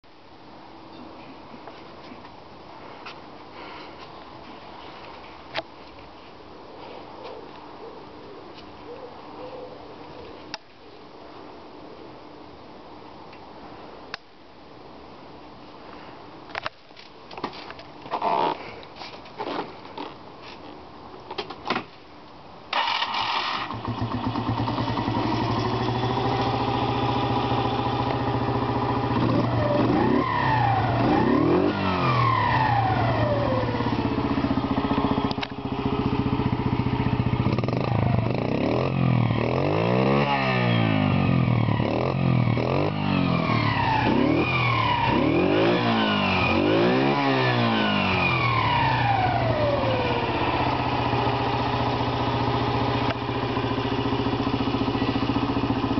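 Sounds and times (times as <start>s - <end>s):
moped engine revving: 22.8s - 55.9s.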